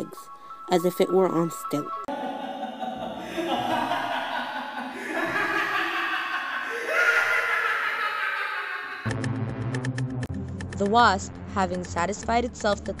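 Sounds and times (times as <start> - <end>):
laughter: 2.1 - 9.1.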